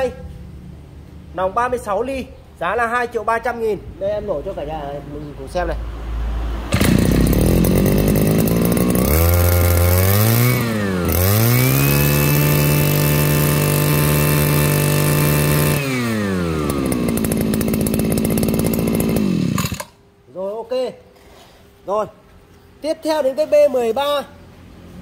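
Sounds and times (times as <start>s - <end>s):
brush cutter engine revving: 6.7s - 20.0s.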